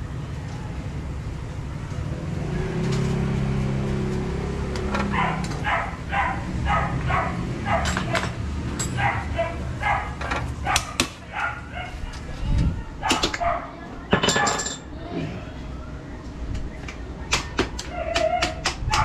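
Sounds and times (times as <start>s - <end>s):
motorcycle engine running: 1.3s - 11.0s
dog barking: 5.1s - 8.2s, 9.0s - 12.1s, 13.0s - 13.8s, 17.9s - 19.0s.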